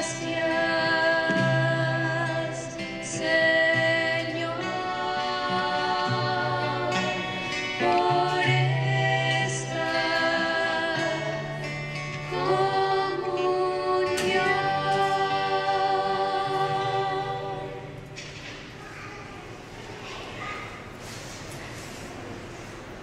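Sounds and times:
person singing liturgical song: 0.0s - 18.2s
keyboard accompaniment: 0.0s - 18.8s.

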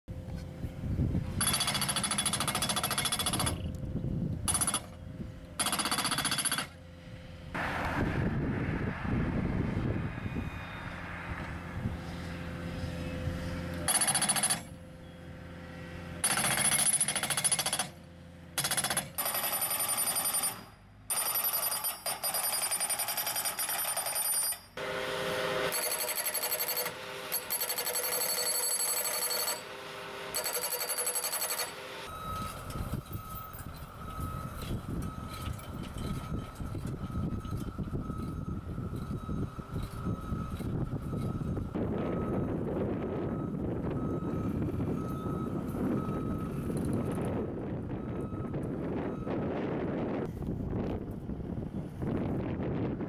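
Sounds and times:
skid steer engine running: 0.1s - 8.5s, 9.1s - 22.8s, 23.5s - 53.0s
hydraulic post driver pounding: 1.4s - 3.7s, 4.5s - 5.0s, 5.6s - 6.8s, 16.2s - 18.0s, 18.6s - 24.7s.

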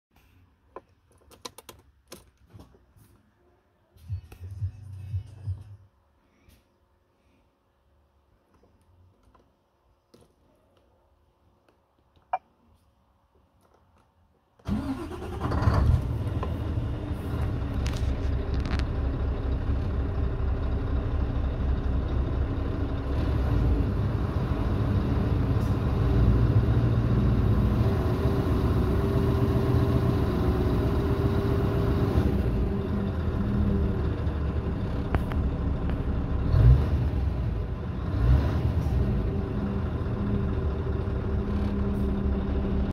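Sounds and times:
diesel engine starting and running: 14.6s - 42.9s.

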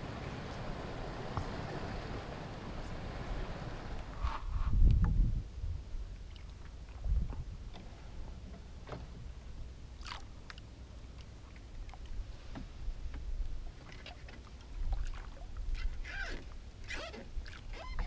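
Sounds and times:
paddle splashing water: 0.0s - 4.4s, 6.2s - 9.3s, 10.0s - 18.0s
steady low rumble: 0.0s - 13.8s.

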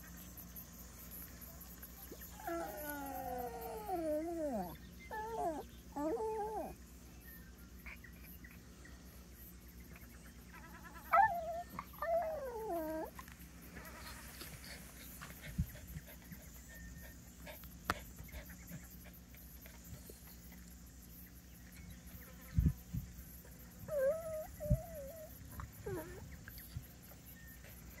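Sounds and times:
small dog whining: 2.4s - 6.8s, 11.0s - 13.2s, 23.9s - 26.3s.

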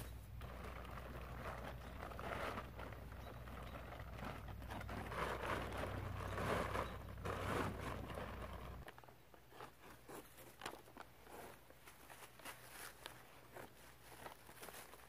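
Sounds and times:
rustling and crunching handling: 0.0s - 15.0s.

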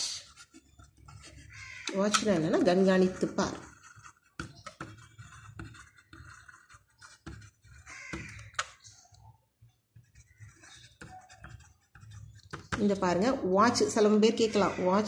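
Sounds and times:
pen scratching on paper: 0.0s - 9.0s, 9.8s - 14.2s.

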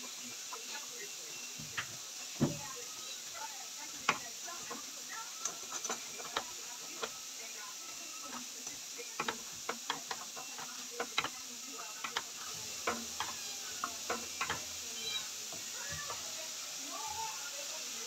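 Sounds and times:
faint steady hiss: 0.0s - 18.0s
wooden spatula scraping metal pot: 4.0s - 7.1s, 12.0s - 16.3s.

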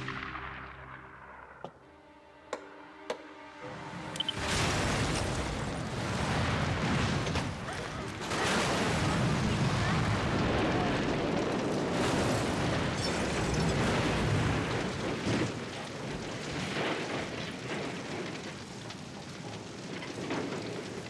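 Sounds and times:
loud explosion blast: 4.4s - 15.4s
car burning: 8.6s - 21.0s.

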